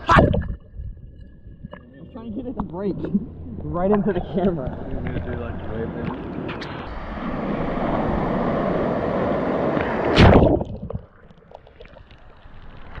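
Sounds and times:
ocean surf churning: 0:02.0 - 0:10.6
wave splash: 0:02.0 - 0:11.2.

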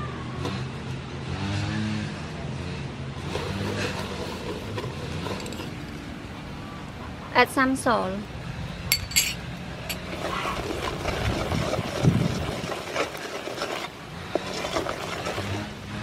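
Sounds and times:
wooden spoon scraping a pot: 0:09.9 - 0:16.0.

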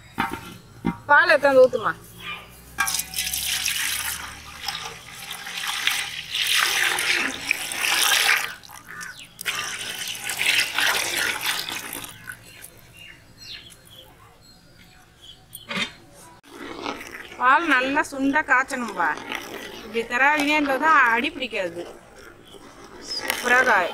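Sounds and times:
milk pouring into pot: 0:02.8 - 0:12.4.

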